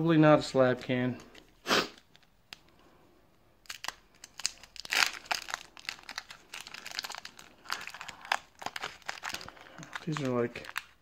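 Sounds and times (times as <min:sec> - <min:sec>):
foil wrapper crinkling and tearing: 0:03.6 - 0:11.0.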